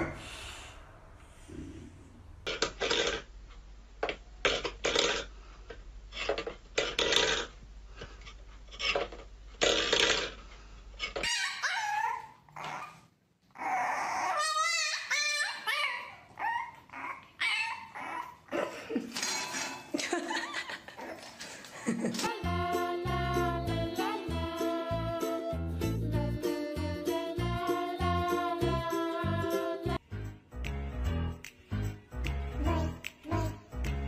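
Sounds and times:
puppy whining and yipping: 11.2s - 18.7s.

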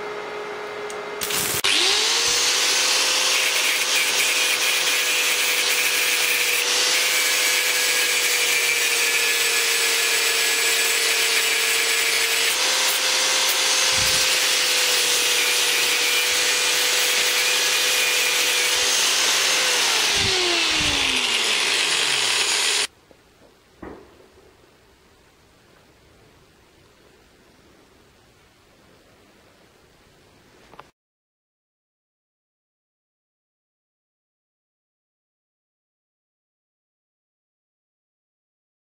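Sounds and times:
angle grinder grinding metal: 1.2s - 22.9s.

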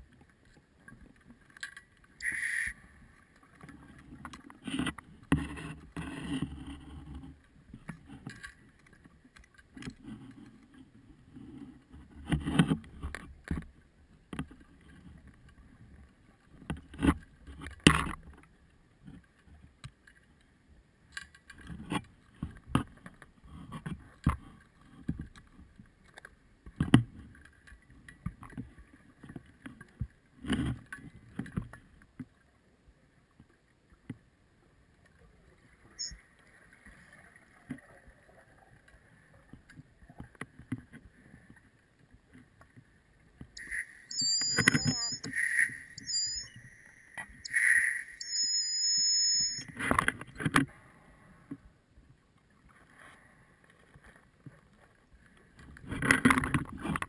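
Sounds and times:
high beep: 43.6s - 49.8s.

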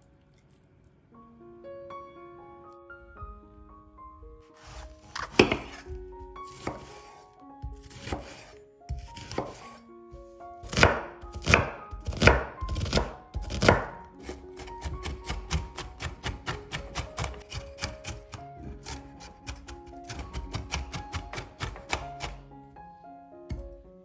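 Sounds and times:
knife chopping onion on board: 4.6s - 9.8s, 10.6s - 22.4s.

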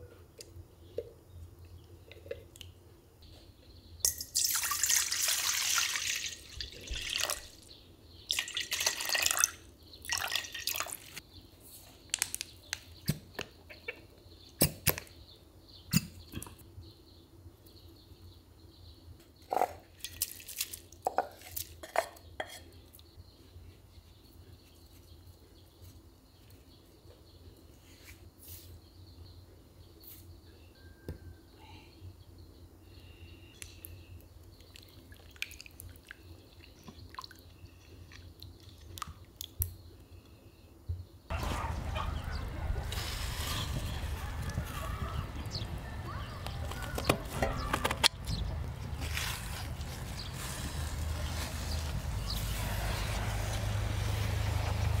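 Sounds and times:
water pouring: 4.1s - 7.7s, 8.3s - 11.2s.

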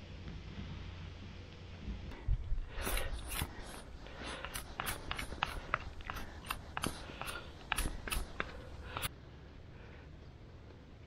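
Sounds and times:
knife whittling wood: 2.6s - 9.1s.

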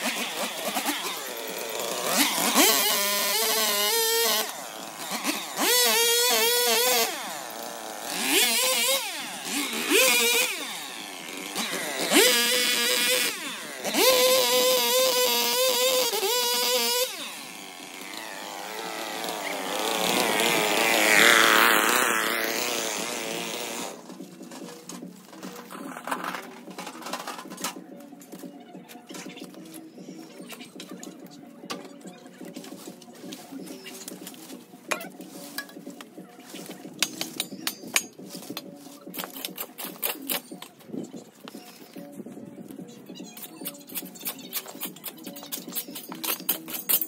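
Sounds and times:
chainsaw revving and cutting: 0.0s - 24.2s.

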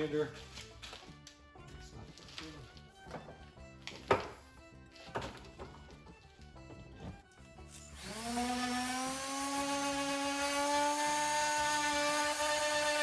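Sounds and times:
electric sander whining: 7.9s - 13.0s.

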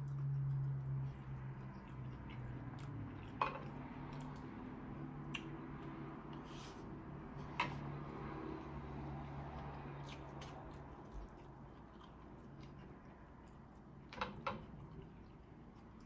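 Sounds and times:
person chewing: 0.0s - 4.6s, 5.2s - 6.8s, 9.5s - 16.0s
low steady hum: 0.0s - 16.0s.

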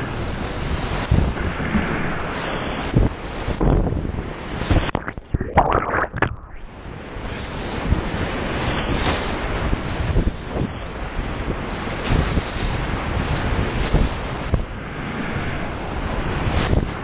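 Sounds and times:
muffled underwater churning: 0.0s - 10.8s
wind noise on microphone: 0.0s - 17.0s.

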